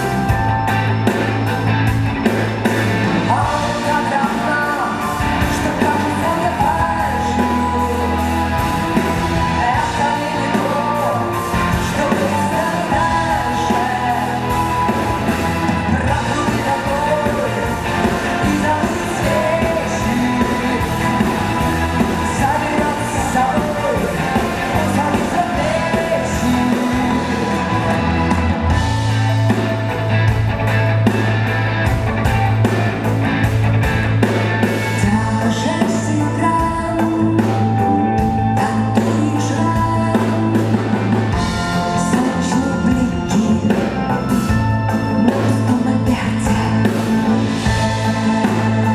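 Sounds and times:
rock band with strings: 0:00.0 - 0:48.9
steady drum beat: 0:00.0 - 0:48.9
woman singing: 0:03.3 - 0:28.4, 0:35.0 - 0:44.4, 0:45.1 - 0:48.9.

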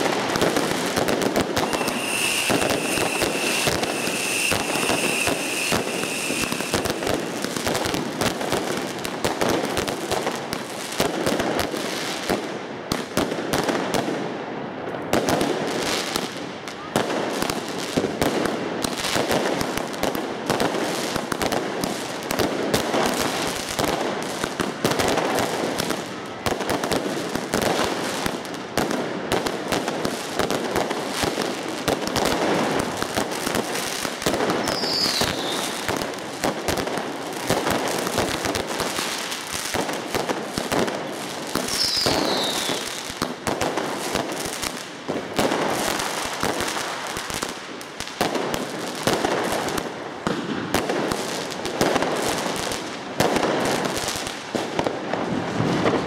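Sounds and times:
fireworks crackling and banging: 0:00.0 - 0:56.0
falling firework whistle: 0:01.4 - 0:07.9, 0:34.6 - 0:36.0, 0:41.6 - 0:43.1.

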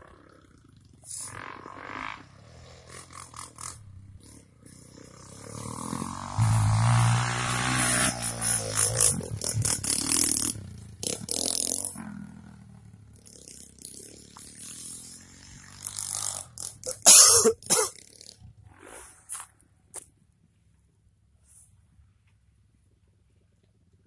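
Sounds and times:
dirt bike engine passing: 0:00.0 - 0:19.7.

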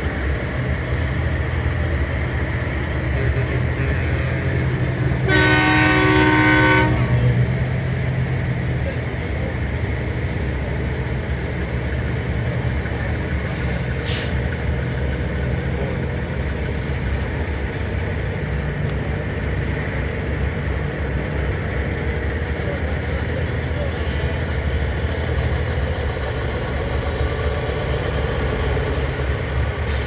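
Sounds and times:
diesel truck engines running: 0:00.0 - 0:30.0
air brake hiss: 0:13.5 - 0:14.8, 0:29.8 - 0:30.0.

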